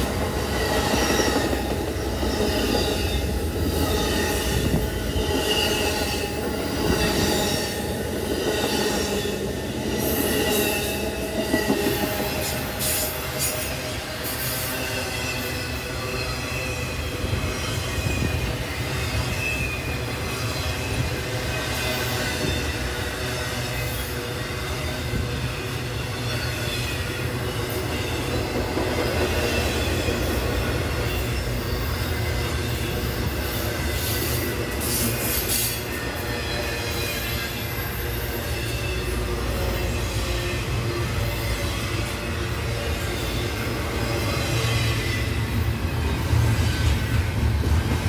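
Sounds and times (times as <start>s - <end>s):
high wheel squeal: 0.0s - 47.8s
train wheels rumbling on rail: 0.0s - 48.0s.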